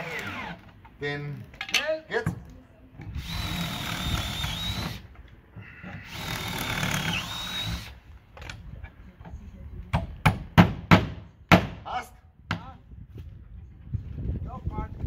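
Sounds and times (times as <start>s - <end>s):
cordless drill boring through wood: 0.0s - 0.6s, 3.1s - 5.1s, 5.9s - 8.0s.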